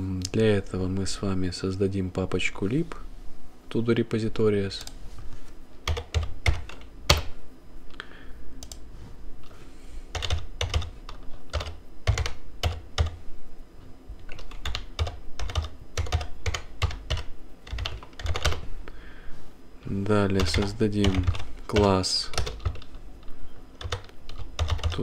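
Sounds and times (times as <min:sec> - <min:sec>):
computer keyboard typing: 0:05.8 - 0:07.3, 0:10.1 - 0:13.2, 0:14.2 - 0:18.6, 0:20.3 - 0:25.0.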